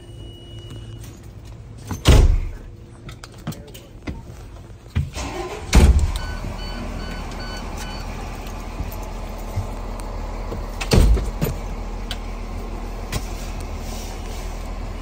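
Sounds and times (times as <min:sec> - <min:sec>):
truck doors slamming: 0:01.9 - 0:02.6, 0:05.1 - 0:06.5, 0:10.7 - 0:11.7
truck engine idling: 0:05.2 - 0:15.0.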